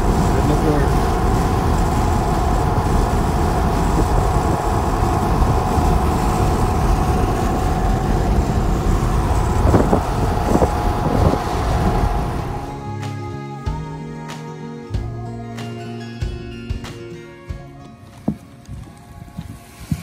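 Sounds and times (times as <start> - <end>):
wind and road noise through car window: 0.0 - 12.7.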